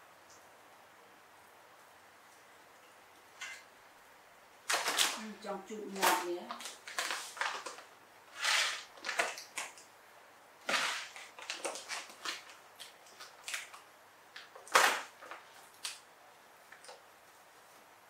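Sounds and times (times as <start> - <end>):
plastic packet crinkling: 4.7 - 5.3, 5.9 - 9.9, 10.6 - 16.0.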